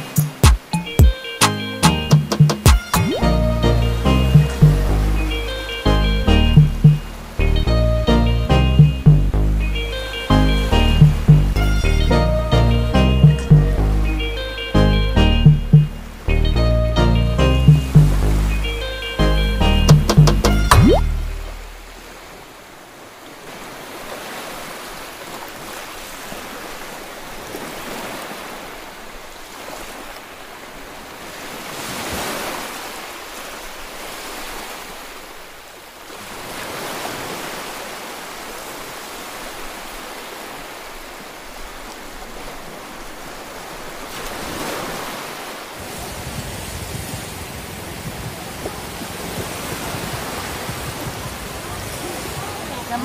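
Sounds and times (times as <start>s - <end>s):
small waves breaking on beach: 21.3s - 53.0s.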